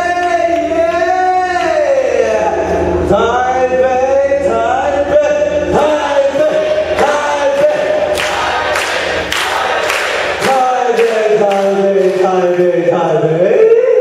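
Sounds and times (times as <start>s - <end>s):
man singing long notes: 4.7s - 8.8s, 9.7s - 12.8s
regular sharp beats: 5.8s - 13.0s.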